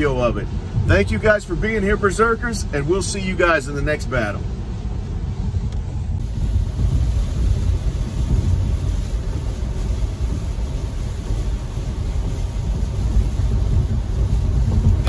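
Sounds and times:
road and tyre noise: 0:00.0 - 0:15.0.

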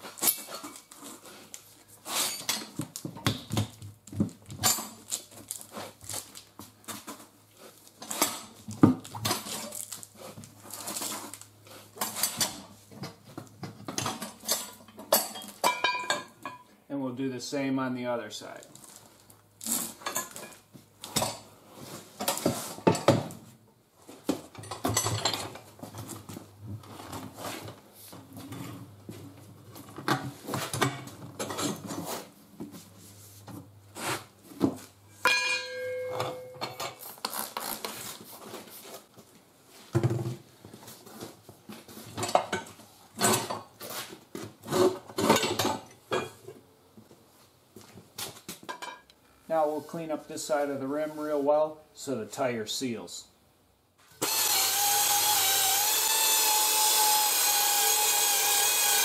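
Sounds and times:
struck metal ringing: 0:35.2 - 0:36.8
metal clanks and knocks: 0:35.2 - 0:37.0.

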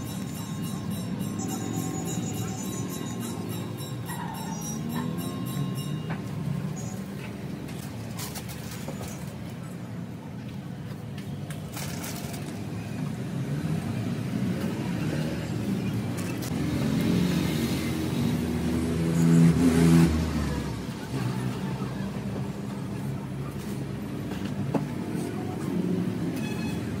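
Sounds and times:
vehicle engine passing by: 0:16.4 - 0:22.8.

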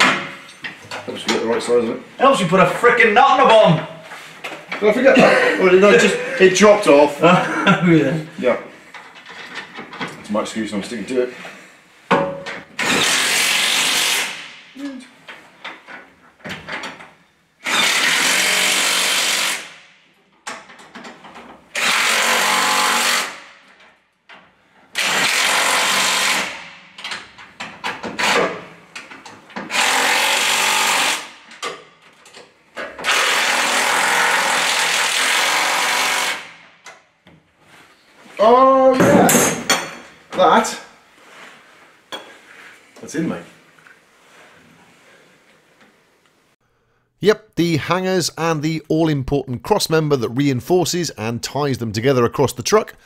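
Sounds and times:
impact wrench bursts: 0:12.8 - 0:14.6, 0:17.6 - 0:19.9, 0:21.7 - 0:23.5, 0:25.0 - 0:26.8, 0:29.6 - 0:31.4, 0:33.0 - 0:36.6.

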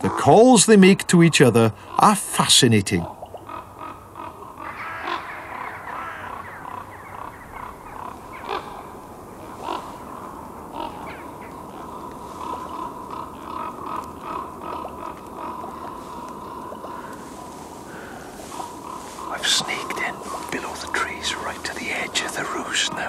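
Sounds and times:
ravens croaking and calling: 0:00.0 - 0:23.0.

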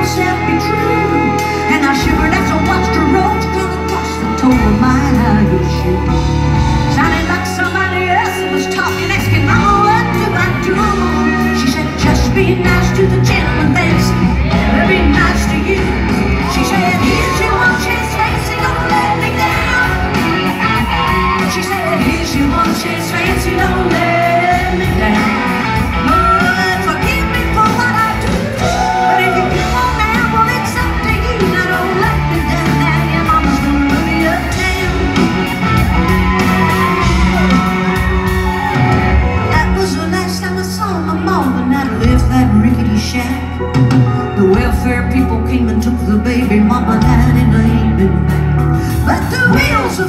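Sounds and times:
woman singing: 0:00.0 - 0:38.7, 0:39.4 - 0:50.0
live country band playing: 0:00.0 - 0:50.0.

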